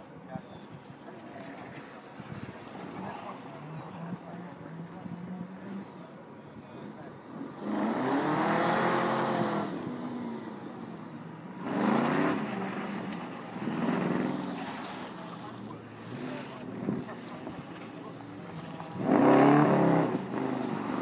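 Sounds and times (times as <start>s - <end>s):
car engine revving: 7.3s - 21.0s.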